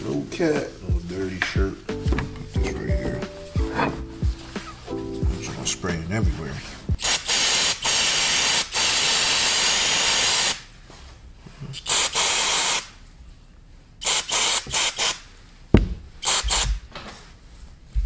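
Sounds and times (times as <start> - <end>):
aerosol spray hissing: 6.9 - 10.6, 11.9 - 12.9, 14.0 - 15.2, 16.2 - 16.8.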